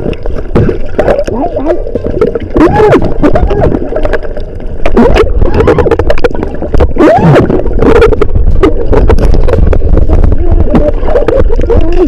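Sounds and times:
underwater rumble: 0.0 - 12.0
water gurgling: 0.0 - 12.0.

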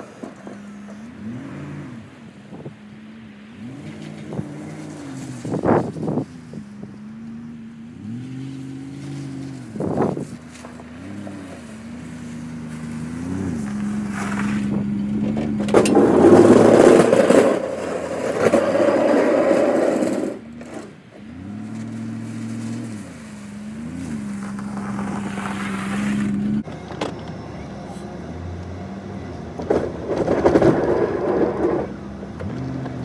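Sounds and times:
truck engine humming: 0.0 - 33.0
loud rough noise: 8.0 - 26.7.

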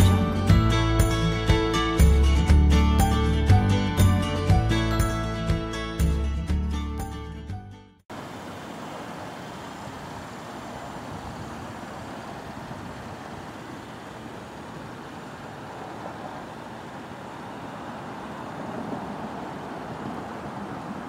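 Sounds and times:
road traffic rumble: 8.1 - 21.0.

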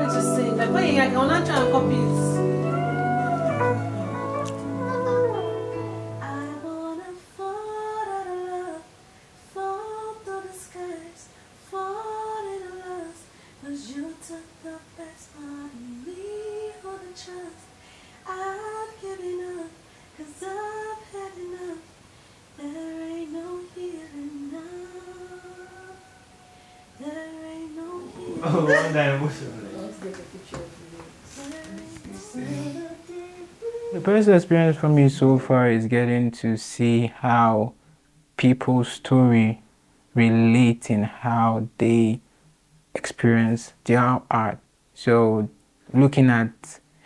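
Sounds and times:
music under voice: 0.0 - 6.5, 28.0 - 30.0, 31.8 - 33.0, 33.6 - 35.6
woman singing: 0.0 - 21.9, 22.6 - 29.0, 30.5 - 34.2.

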